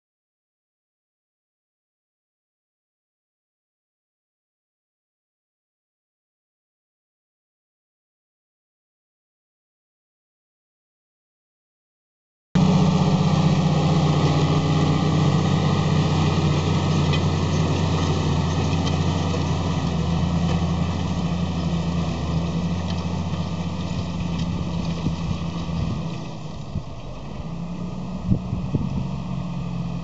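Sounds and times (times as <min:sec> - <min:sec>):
tractor diesel engine running: 0:12.6 - 0:30.0.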